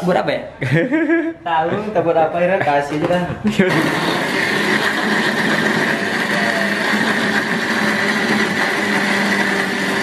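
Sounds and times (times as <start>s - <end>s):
electric blender grinding: 3.5s - 10.0s.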